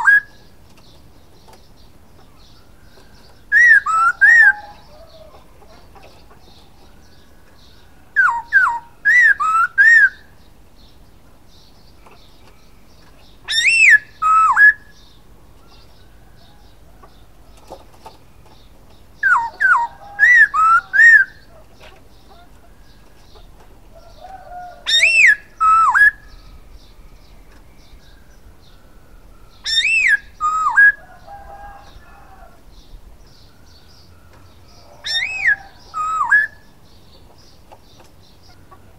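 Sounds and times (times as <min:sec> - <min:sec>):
faint bird chatter: 0:00.0 - 0:38.9
bird singing whistled phrases: 0:03.5 - 0:04.7, 0:08.2 - 0:10.3, 0:13.5 - 0:15.0, 0:24.9 - 0:26.5, 0:28.8 - 0:31.0, 0:35.1 - 0:36.6.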